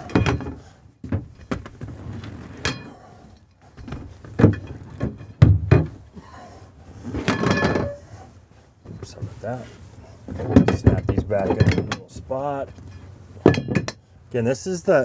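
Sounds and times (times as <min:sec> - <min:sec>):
metal rails knocking and clattering: 0:00.0 - 0:01.6, 0:03.8 - 0:06.0, 0:07.2 - 0:08.0, 0:10.3 - 0:14.0.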